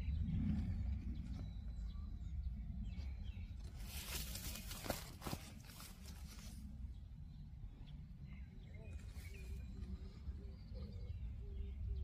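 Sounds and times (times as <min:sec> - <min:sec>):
low steady rumble: 0:00.0 - 0:12.0
leaves rustling: 0:03.6 - 0:06.7.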